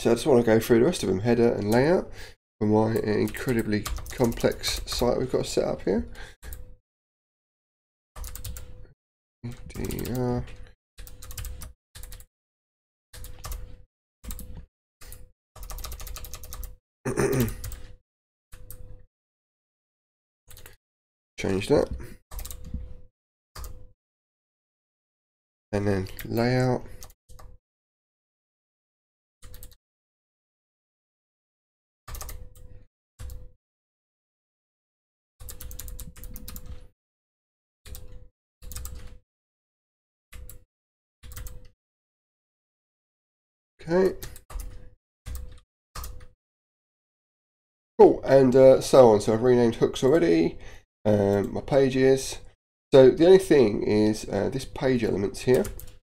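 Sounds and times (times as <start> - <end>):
keyboard typing: 2.9 - 5.1, 8.2 - 8.7, 9.5 - 12.3, 13.2 - 13.6, 14.2 - 18.0, 22.3 - 22.8, 29.4 - 29.8, 32.1 - 32.6, 35.4 - 36.9, 37.9 - 39.2, 41.2 - 41.7, 44.1 - 46.3, 55.5 - 56.0
wordless voice sound: 9.4 - 10.6, 48.0 - 55.8.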